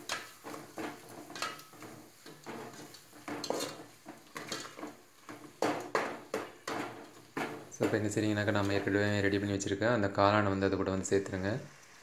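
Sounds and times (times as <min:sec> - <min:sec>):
spatula scraping a metal pot: 0:00.0 - 0:08.0.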